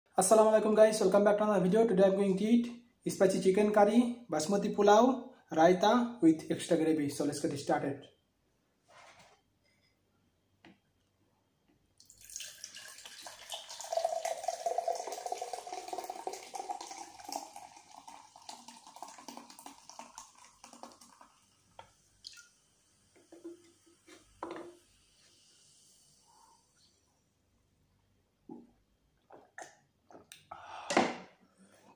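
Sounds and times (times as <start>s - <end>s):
drink pouring into glass: 12.0s - 21.6s
carbonation fizzing: 12.0s - 24.0s.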